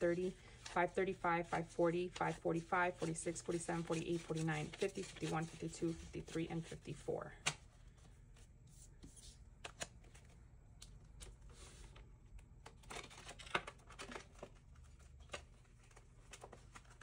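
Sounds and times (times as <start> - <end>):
paper and plastic rustling: 2.2 - 6.8, 12.7 - 17.0.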